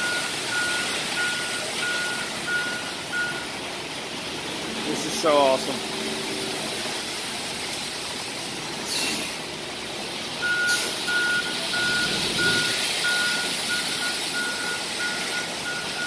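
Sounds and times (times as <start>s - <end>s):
reversing alarm beeping: 0.0s - 3.6s, 10.4s - 16.0s
truck engine running: 0.0s - 16.0s
air hisses: 8.8s - 9.4s.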